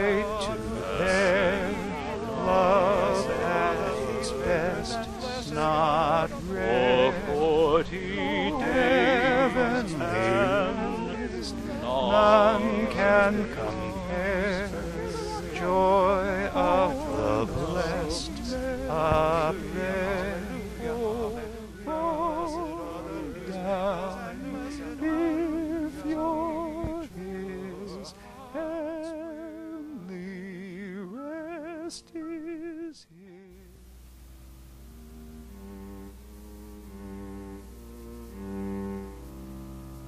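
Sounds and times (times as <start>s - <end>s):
sustained keyboard chords: 34.1s - 40.0s.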